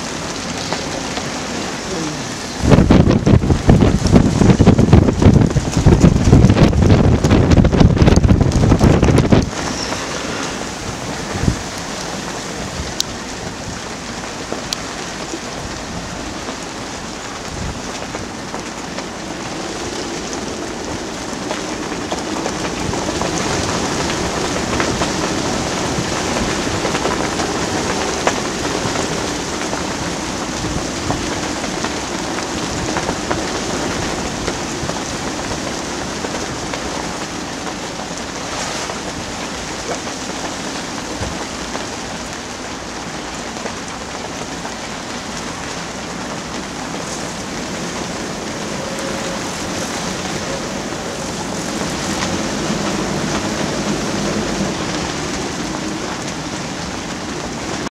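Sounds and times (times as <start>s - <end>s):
rain hissing and pattering: 0.0s - 57.9s
wind buffeting microphone: 0.0s - 57.9s.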